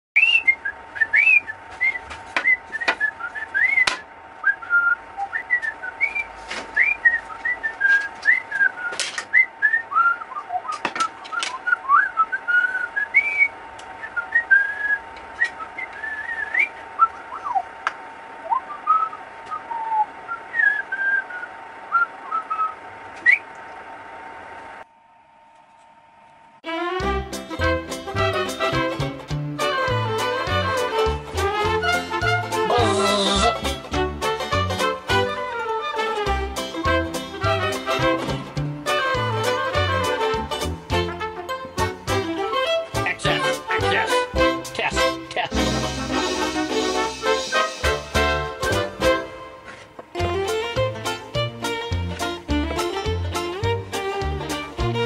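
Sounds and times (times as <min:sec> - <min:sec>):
whistled chirps and trills: 0:00.2 - 0:17.7, 0:18.4 - 0:23.5.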